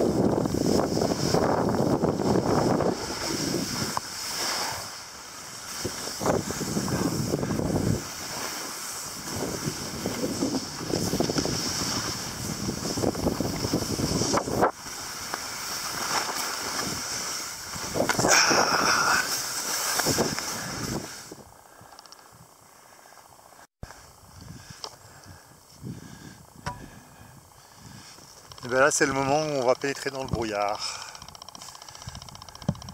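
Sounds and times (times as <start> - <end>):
wind buffeting microphone: 0.0 - 4.2, 5.6 - 8.3, 9.0 - 14.9, 32.0 - 32.9
skis hissing over snow: 0.0 - 21.5.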